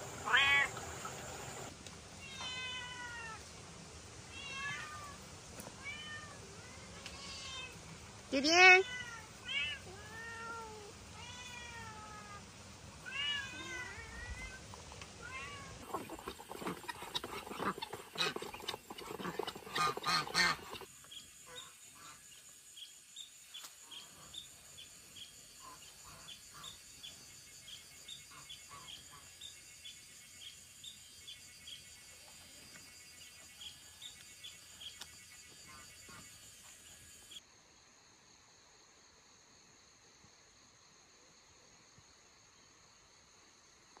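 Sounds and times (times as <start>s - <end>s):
cat meowing: 0.2s - 0.7s, 2.2s - 3.4s, 4.3s - 5.2s, 8.8s - 12.4s, 13.0s - 14.6s.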